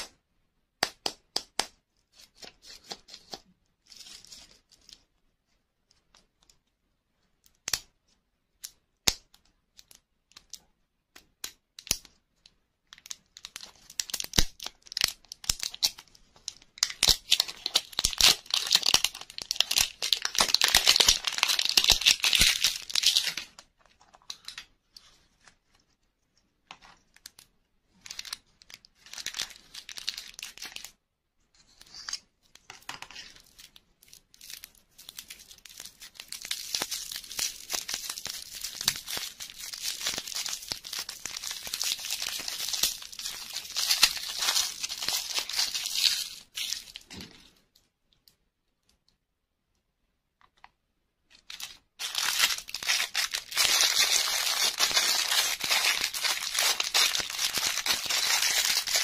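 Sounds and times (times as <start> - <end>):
candy wrapper crinkling and tearing: 12.8 - 25.5, 26.8 - 31.0, 32.9 - 47.1, 51.3 - 59.0
plastic bag crinkling: 17.0 - 24.5, 34.4 - 47.1, 51.4 - 59.0.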